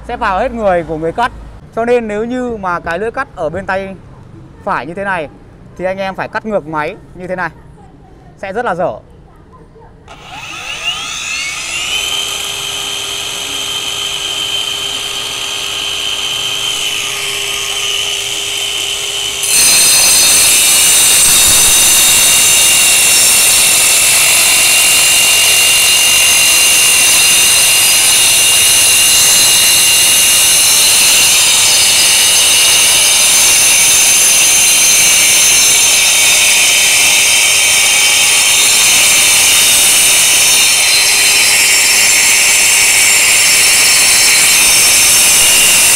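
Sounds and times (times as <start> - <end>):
blades grinding into brick: 10.1 - 45.9
wall chaser whining: 10.1 - 45.9.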